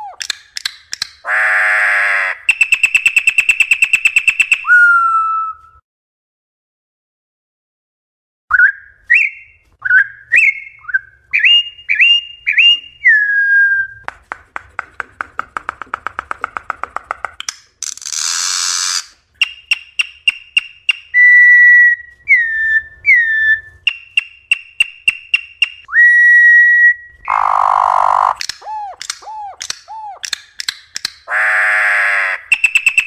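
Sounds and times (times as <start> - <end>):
bird whistling song: 2.3 - 5.8, 8.5 - 14.1, 18.9 - 30.5, 32.3 - 33.0.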